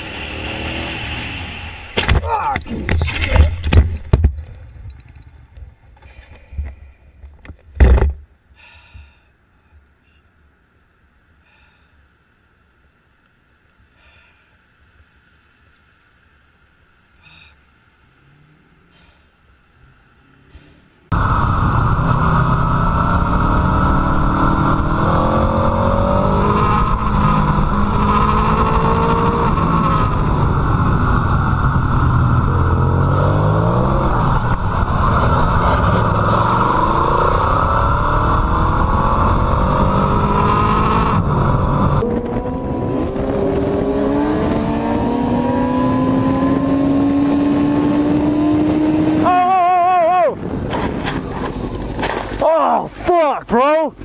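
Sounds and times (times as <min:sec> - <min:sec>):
motorcycle engine revving: 0:00.0 - 0:02.0, 0:21.1 - 0:49.4.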